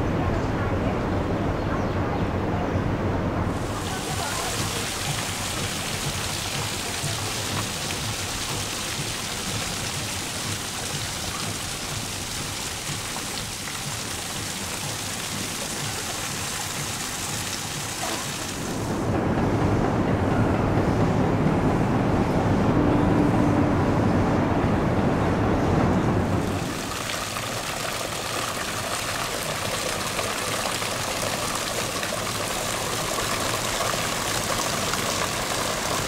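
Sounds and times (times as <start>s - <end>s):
rushing water hiss: 3.5s - 19.1s, 26.4s - 36.0s.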